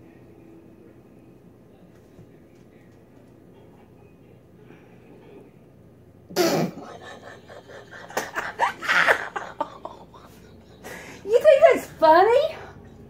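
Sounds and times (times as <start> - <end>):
woman laughing: 6.8 - 12.4.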